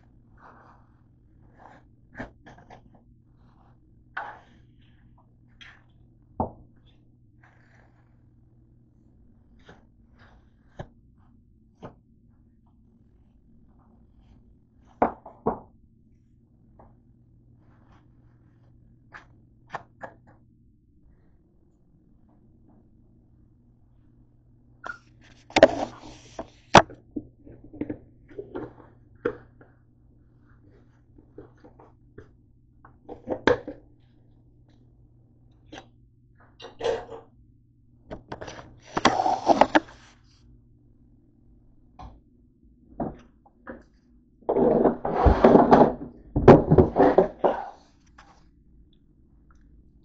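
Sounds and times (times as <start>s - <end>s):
rubbing and scraping: 25.2s - 26.9s, 38.4s - 40.4s, 44.5s - 48.4s
things clattering on a countertop: 44.5s - 47.8s.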